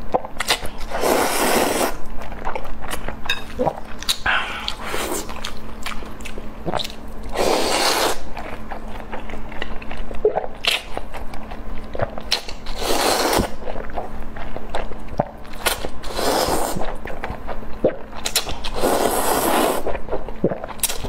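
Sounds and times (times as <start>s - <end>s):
slurping noodles: 0.8s - 2.0s, 4.3s - 5.4s, 6.7s - 8.3s, 12.6s - 13.6s, 15.7s - 17.0s, 18.7s - 21.0s
chewing: 2.0s - 21.0s.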